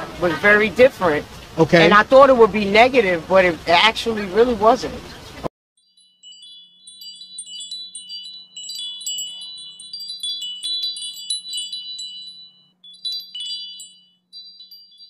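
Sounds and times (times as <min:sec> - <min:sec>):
wind chimes tinkling: 0:05.8 - 0:15.0.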